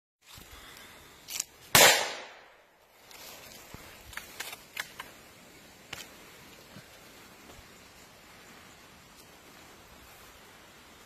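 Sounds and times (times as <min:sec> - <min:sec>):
rifle shot echoing: 0:01.7 - 0:02.6.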